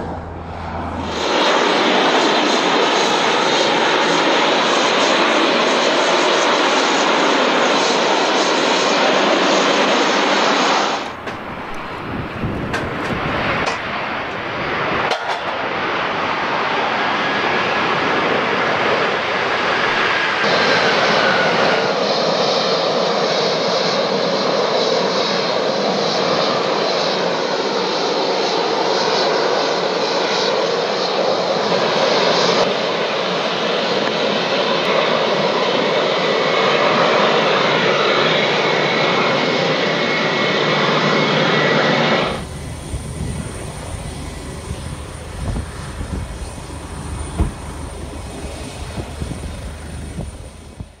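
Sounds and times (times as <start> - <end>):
jet engines roaring: 0.0 - 51.0.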